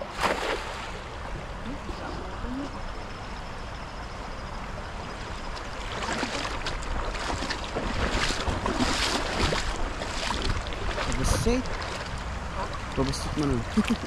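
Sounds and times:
river water splashing: 0.0s - 14.0s
wind on microphone: 4.7s - 14.0s.

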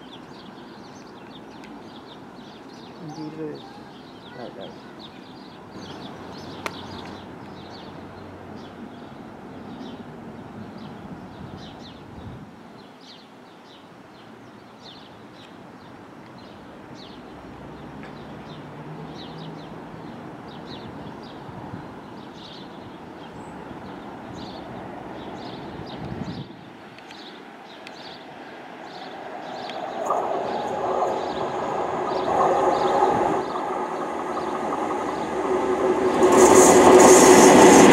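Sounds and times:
birds chirping: 0.0s - 10.0s, 22.0s - 37.9s
diesel locomotive engine running: 29.8s - 37.9s.

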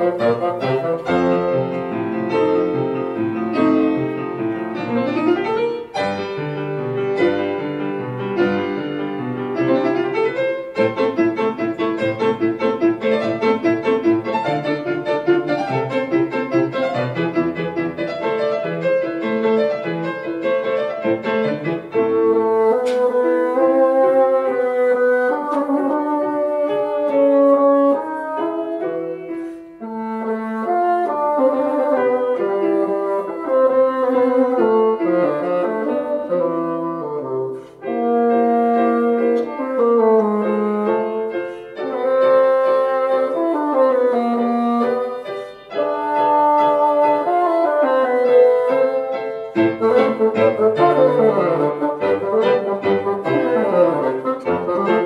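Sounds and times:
bassoon long held notes: 0.0s - 5.2s, 21.9s - 55.0s
grand piano playing: 0.0s - 55.0s.

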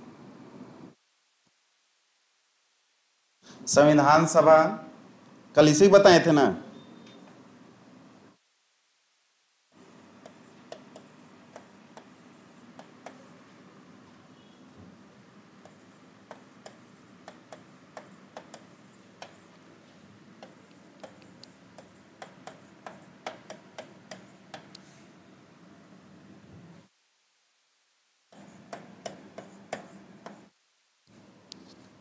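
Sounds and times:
low room hum: 6.5s - 32.0s
writing tool tapping and clicking: 10.1s - 13.3s, 15.6s - 19.6s, 20.4s - 24.8s, 28.3s - 30.5s.

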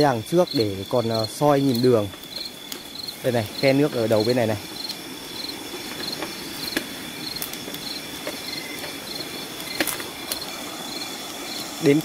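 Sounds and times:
insect chirping: 0.0s - 12.0s
steady high insect trill: 0.0s - 12.0s.

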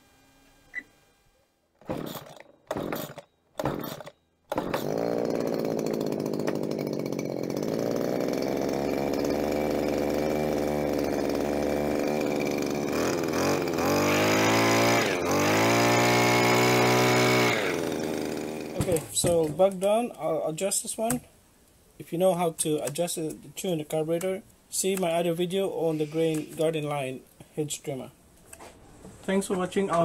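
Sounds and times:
hedge trimmer engine idling and revving: 1.8s - 19.4s
recoil starter tugs: 1.8s - 19.6s.

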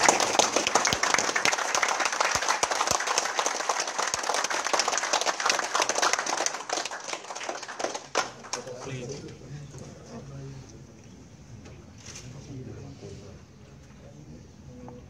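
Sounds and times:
group of people clapping: 0.0s - 9.2s.

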